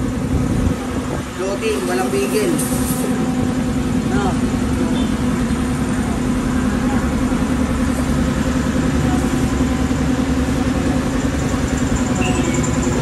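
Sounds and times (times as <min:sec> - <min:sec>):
scooter engine running: 0:03.0 - 0:13.0.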